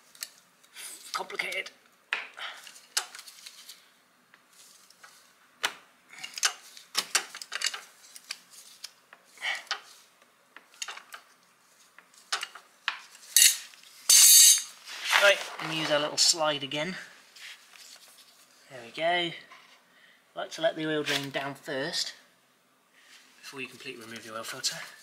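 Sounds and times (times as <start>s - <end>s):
metal tool clinking and scraping: 13.2s - 14.8s.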